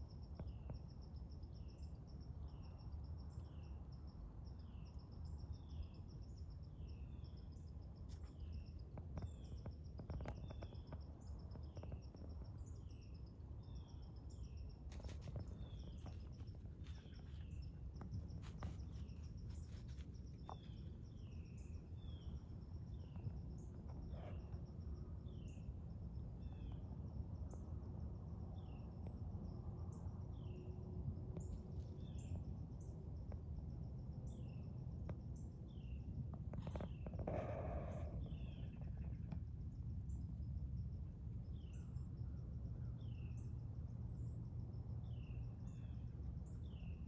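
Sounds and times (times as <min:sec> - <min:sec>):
insect trill: 0:00.0 - 0:47.0
low steady rumble: 0:00.0 - 0:47.0
dry leaves crackling: 0:18.4 - 0:20.2.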